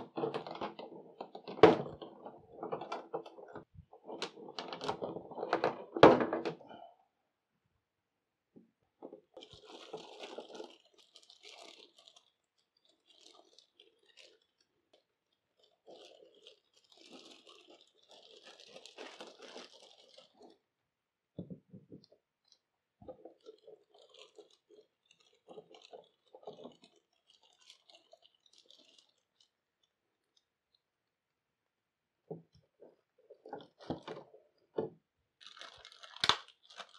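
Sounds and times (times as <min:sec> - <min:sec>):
plastic packaging crinkling: 0:00.0 - 0:06.4, 0:09.1 - 0:20.7, 0:22.0 - 0:30.4, 0:35.4 - 0:36.9.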